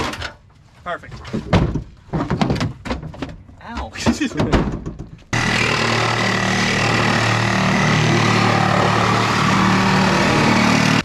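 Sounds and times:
reciprocating saw cutting steel: 5.4 - 11.0.

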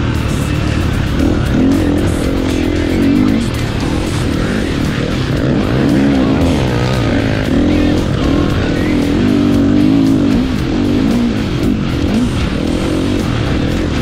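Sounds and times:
motorcycle engine revving: 0.0 - 14.0
music playing: 0.0 - 14.0.

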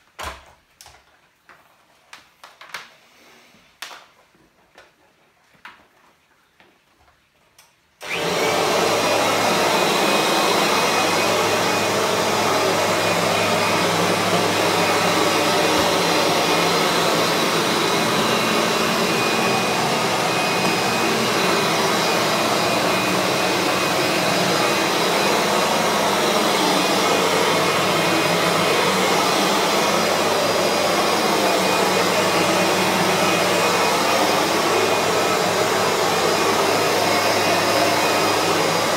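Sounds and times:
vacuum cleaner motor whine: 8.0 - 38.9.

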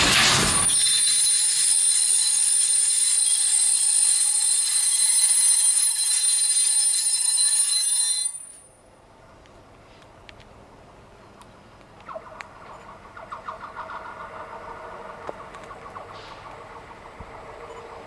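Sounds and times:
train wheels squealing: 0.5 - 8.7, 14.4 - 18.0.

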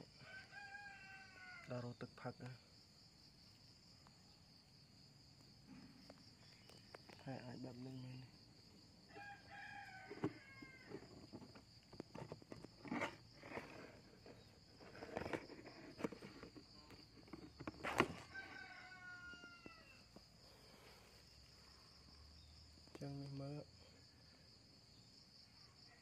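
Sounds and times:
distant rooster crowing: 0.1 - 1.8, 9.0 - 11.3, 17.8 - 20.9.

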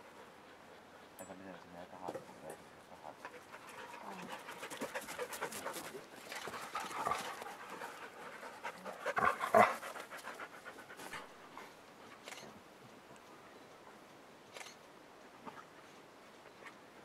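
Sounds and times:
dogs panting heavily: 0.0 - 12.0.

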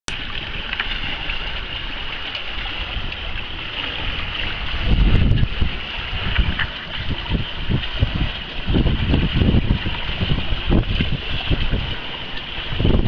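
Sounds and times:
water rushing along a hull: 0.1 - 13.0
wind buffeting the microphone: 0.1 - 13.0.

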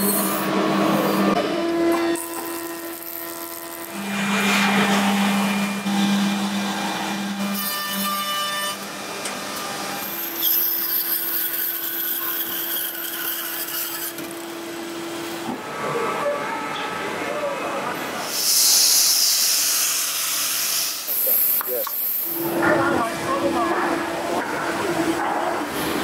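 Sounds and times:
wood being cut: 0.0 - 15.5
woodworking machine motor hum: 0.2 - 10.1.

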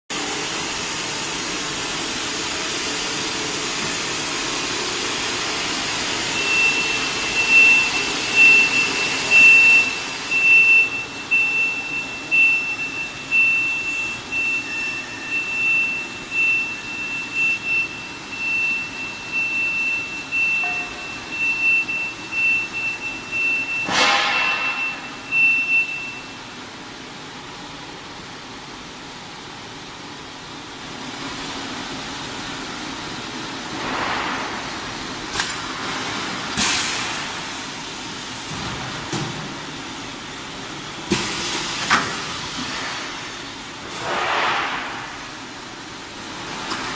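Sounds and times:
high steady machine tone: 0.1 - 27.5
welding machine hiss: 35.3 - 38.6.

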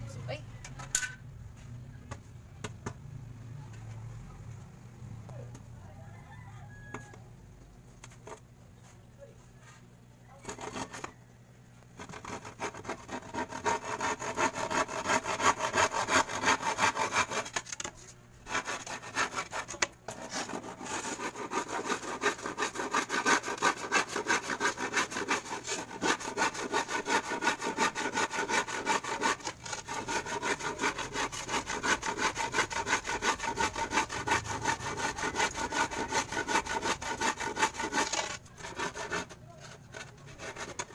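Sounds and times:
handsaw cutting plywood: 10.4 - 11.1, 12.0 - 40.9.

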